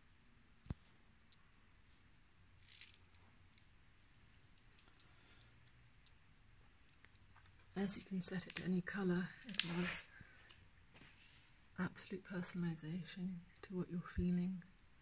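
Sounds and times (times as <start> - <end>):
soft rustle: 0.6 - 11.8.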